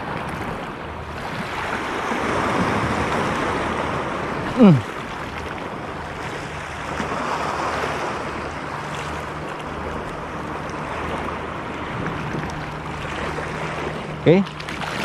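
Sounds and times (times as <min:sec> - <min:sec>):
sea surf washing over rocks: 0:00.0 - 0:10.0.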